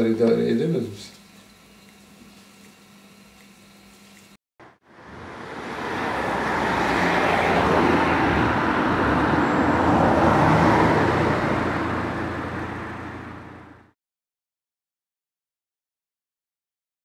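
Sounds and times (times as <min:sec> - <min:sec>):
road traffic rushing: 0:04.6 - 0:14.0.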